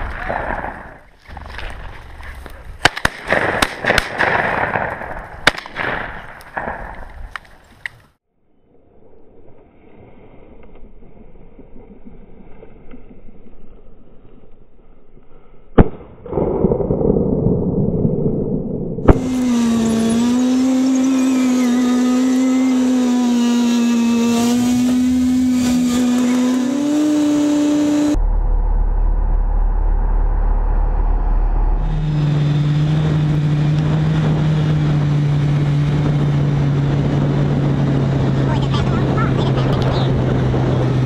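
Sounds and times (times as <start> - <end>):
shotgun shot: 2.8 - 7.1, 15.8 - 17.1
atv engine running: 19.1 - 28.2, 31.8 - 41.0.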